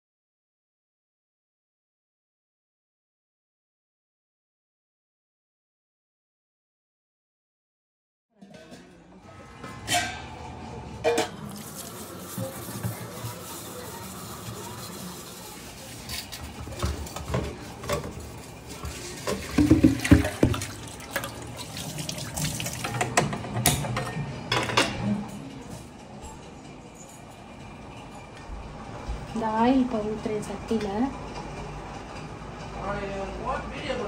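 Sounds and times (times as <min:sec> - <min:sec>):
metal pot clinking and clanking: 0:08.4 - 0:10.4, 0:11.0 - 0:13.3, 0:15.9 - 0:21.3
tap water running: 0:11.1 - 0:23.8.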